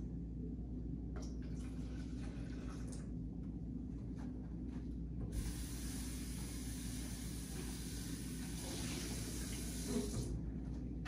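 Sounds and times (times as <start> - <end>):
tap water running into sink: 5.3 - 10.3.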